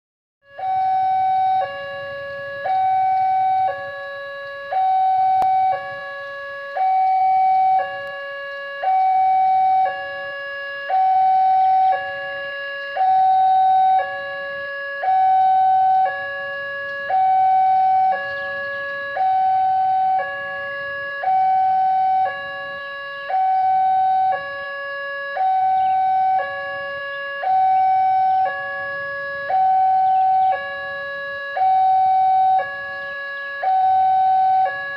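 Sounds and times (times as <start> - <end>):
two-tone warning alarm: 0.4 - 34.9.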